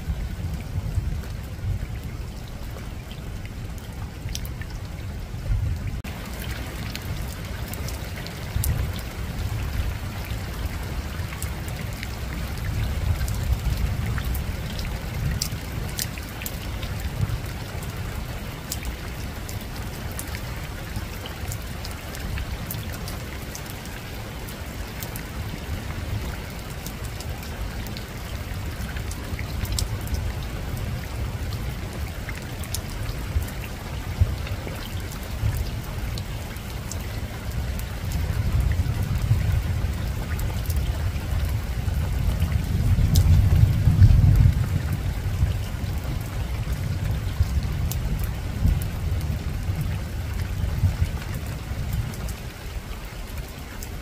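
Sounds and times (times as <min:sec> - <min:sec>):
rain on a rooftop: 0:00.0 - 0:54.0
distant thunder rumble: 0:41.0 - 0:51.1.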